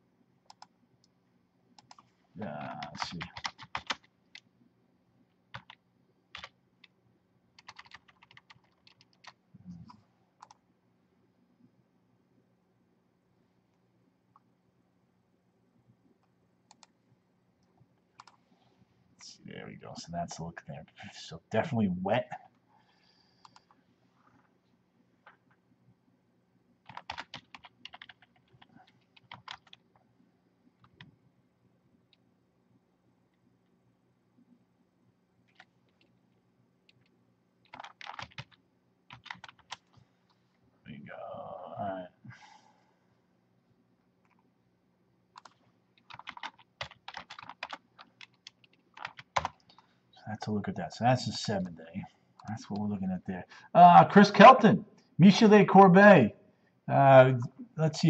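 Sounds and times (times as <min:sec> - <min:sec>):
computer keyboard typing: 0:00.5 - 0:00.7, 0:01.8 - 0:02.1, 0:02.7 - 0:04.4, 0:05.5 - 0:06.9, 0:07.6 - 0:09.4, 0:10.4 - 0:10.6, 0:16.7 - 0:16.9, 0:18.2 - 0:18.4, 0:26.8 - 0:29.9, 0:30.8 - 0:31.1, 0:35.5 - 0:36.1, 0:36.9 - 0:40.0, 0:45.4 - 0:49.8.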